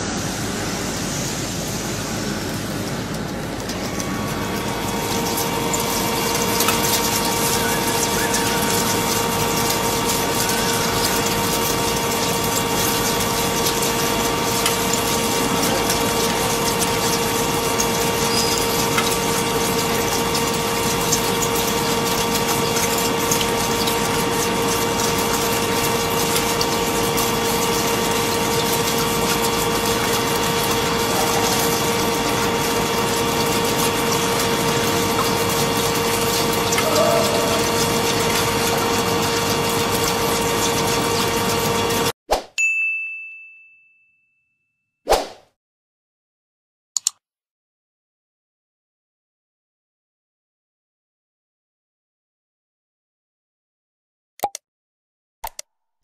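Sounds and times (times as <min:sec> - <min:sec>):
coolant spray rushing: 0:00.0 - 0:42.1
machine spindle whine: 0:00.0 - 0:42.1.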